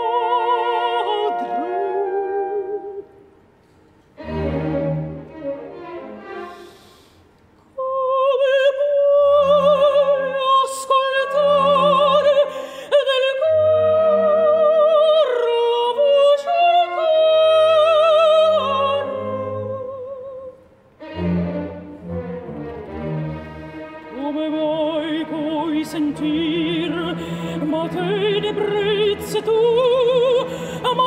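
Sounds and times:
operatic soprano singing: 0.0 - 3.2, 7.8 - 20.6, 24.1 - 31.0
soft orchestral accompaniment: 0.0 - 31.0.

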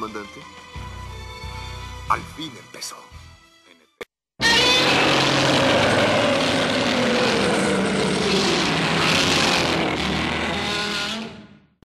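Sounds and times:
monster roar screeching: 4.4 - 11.6.

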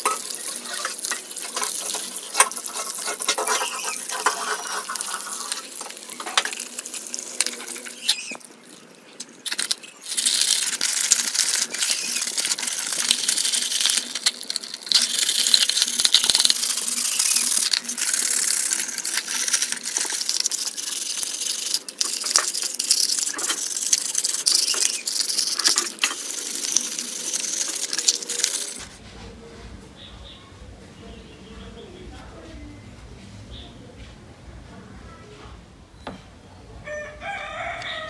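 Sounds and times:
sponge scrubbing plastic: 0.0 - 8.8, 9.4 - 29.1
running water: 0.0 - 28.9.

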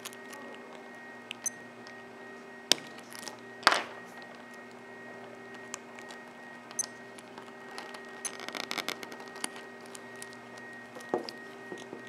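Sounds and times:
steady low hum: 0.0 - 12.0
fingers rubbing plastic watch case: 5.5 - 12.0.

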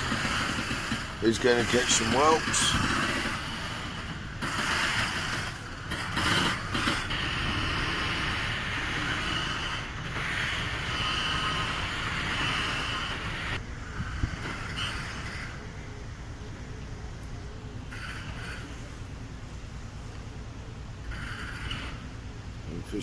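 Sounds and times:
lock gate machinery running: 0.0 - 13.6.

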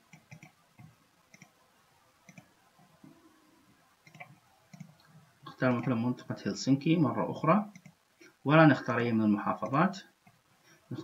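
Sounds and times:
computer mouse clicks: 0.1 - 1.6, 2.3 - 3.2, 4.0 - 5.2, 7.7 - 8.4.

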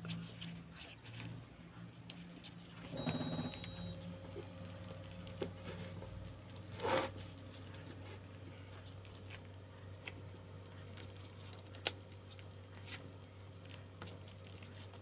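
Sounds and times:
low steady hum: 0.0 - 15.0
leaf rustling and squishing: 4.4 - 15.0.

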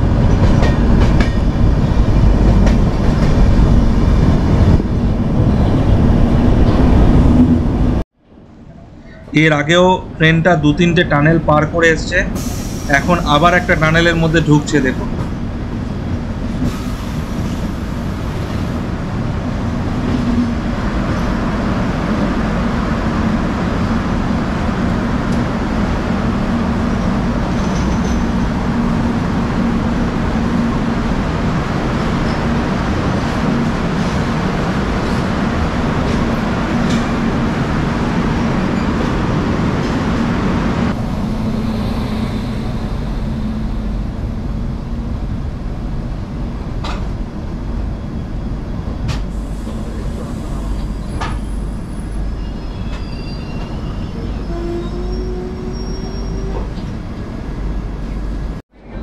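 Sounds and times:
train wheels on rails: 0.0 - 8.0, 24.7 - 47.3, 48.6 - 58.6.

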